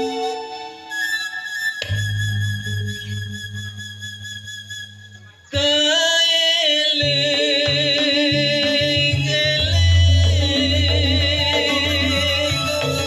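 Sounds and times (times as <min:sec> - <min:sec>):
deep bass notes: 0:01.8 - 0:05.2
loud music through sound system: 0:07.0 - 0:13.0.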